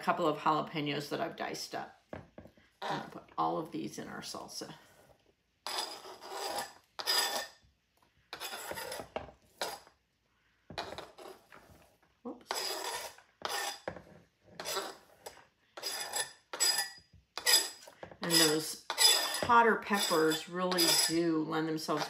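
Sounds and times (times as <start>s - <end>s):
scraping on plastic cutting board: 5.6s - 7.6s, 8.3s - 9.9s, 10.7s - 21.2s.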